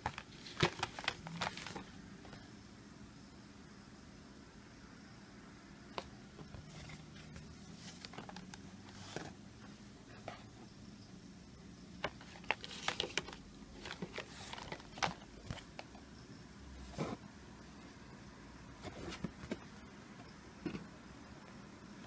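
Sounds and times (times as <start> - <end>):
cardboard folder rustling and tapping: 0.0 - 1.9, 7.8 - 9.4, 12.0 - 16.0.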